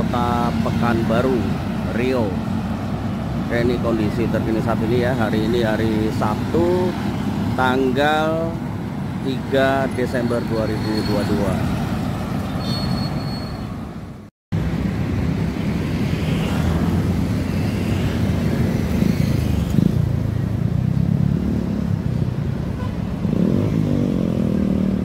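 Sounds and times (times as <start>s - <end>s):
traffic passing: 0.0s - 25.0s
motorcycle passing close: 16.2s - 25.0s.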